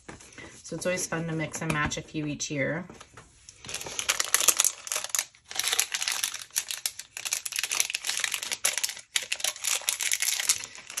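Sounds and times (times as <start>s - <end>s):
plastic packets crinkling: 3.6s - 11.0s.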